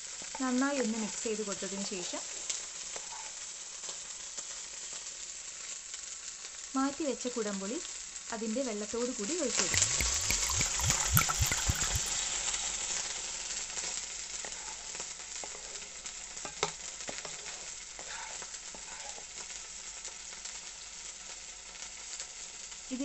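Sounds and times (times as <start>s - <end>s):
liquid sizzling in hot pan: 0.0s - 23.0s
wooden spatula stirring: 9.8s - 12.2s.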